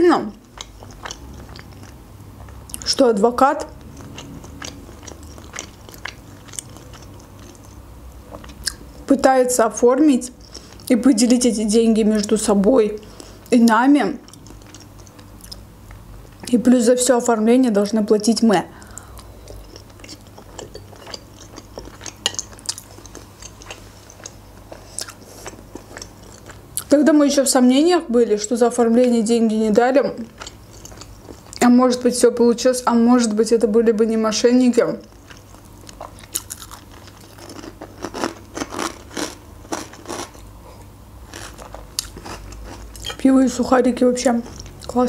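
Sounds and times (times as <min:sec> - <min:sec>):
chewing with mouth clicks: 0:00.3 - 0:02.9, 0:03.6 - 0:09.0, 0:14.2 - 0:16.5, 0:18.8 - 0:26.9, 0:30.2 - 0:31.6, 0:35.0 - 0:43.2, 0:44.4 - 0:45.0.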